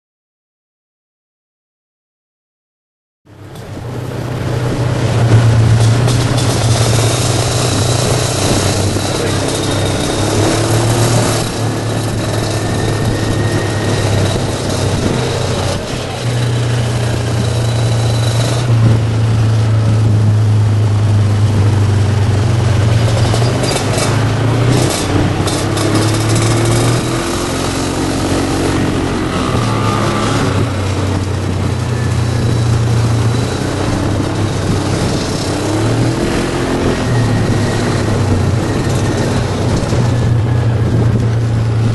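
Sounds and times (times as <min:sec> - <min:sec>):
scooter and motorcycle engines: 0:03.3 - 0:41.9.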